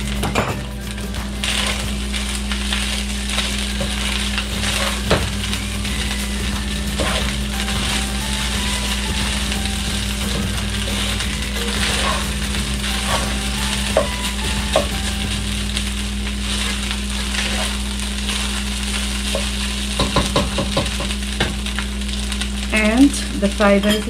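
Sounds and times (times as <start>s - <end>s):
rice sizzling in a pan: 0.0s - 24.0s
steady low hum: 0.0s - 24.0s
spatula scraping and knocking pan: 3.4s - 15.4s, 19.2s - 21.6s.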